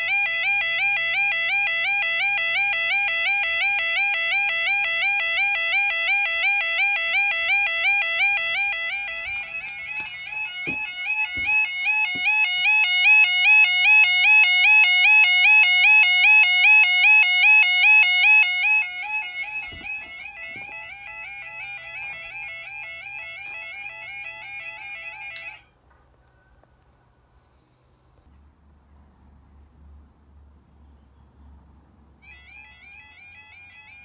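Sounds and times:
level crossing warbling alarm: 0.0 - 25.7, 32.2 - 34.0
handling knocks: 9.0 - 12.5, 18.8 - 21.0.

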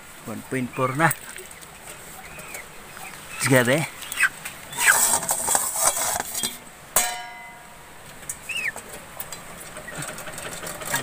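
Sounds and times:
chicken peeping: 0.3 - 5.8, 8.2 - 11.0
metal scale pan clanging: 4.9 - 7.8.

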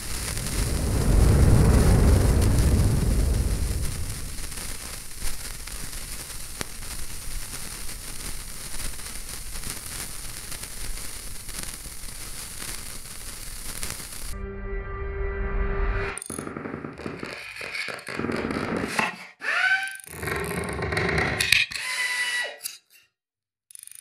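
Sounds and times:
sparkler hissing and crackling: 0.0 - 14.4.

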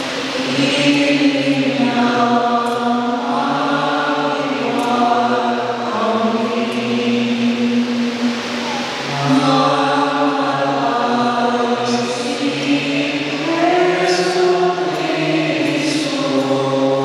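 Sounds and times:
voices chanting slowly: 0.0 - 17.0.

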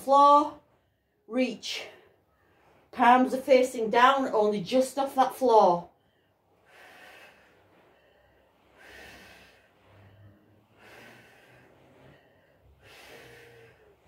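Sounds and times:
woman breathing hard: 6.0 - 14.0.

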